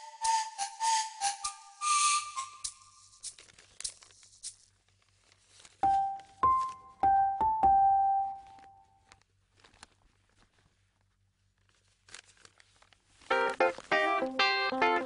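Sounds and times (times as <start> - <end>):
soft piano notes: 5.8 - 9.0, 13.3 - 15.0.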